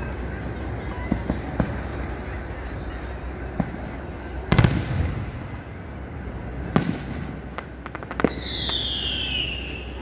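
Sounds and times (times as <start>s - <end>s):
fireworks bangs: 0.9s - 2.3s, 3.4s - 10.0s.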